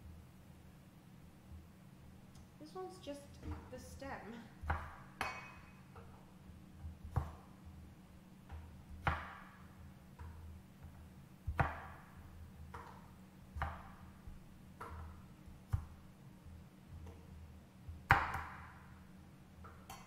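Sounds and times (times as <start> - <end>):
cleaver chopping on wooden board: 4.6 - 5.5, 9.0 - 9.6, 11.5 - 12.1, 13.6 - 14.1, 18.1 - 18.7.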